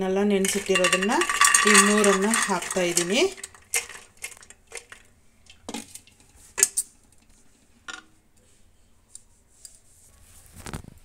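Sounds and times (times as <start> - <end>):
metal pots clinking: 0.4 - 6.8.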